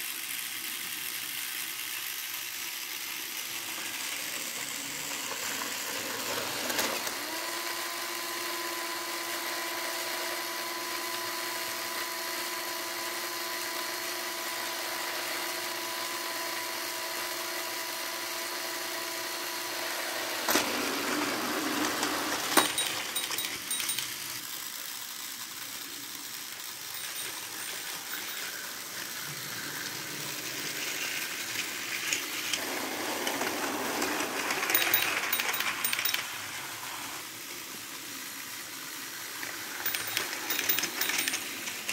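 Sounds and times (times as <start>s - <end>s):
toy train motor whine: 0.0s - 41.9s.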